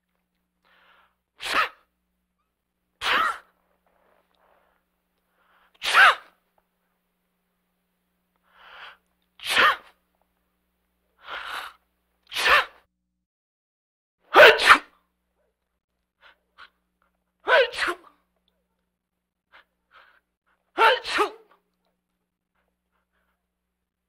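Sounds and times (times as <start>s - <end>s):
man sneezing: 1.4s - 1.9s, 3.0s - 3.5s, 5.8s - 6.4s, 9.4s - 10.0s, 12.3s - 12.8s, 14.3s - 14.9s, 17.5s - 18.2s, 20.8s - 21.6s
soft short sound before sneeze: 1.4s - 1.9s, 3.0s - 3.6s, 5.8s - 6.4s, 9.4s - 10.0s, 12.3s - 12.9s, 14.3s - 15.0s, 17.5s - 18.2s, 20.8s - 21.6s.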